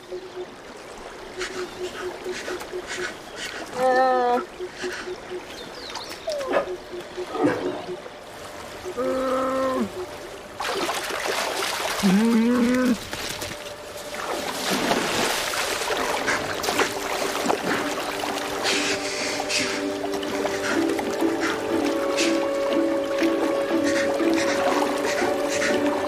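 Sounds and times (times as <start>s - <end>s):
heavy splashing in water: 10.6s - 26.0s.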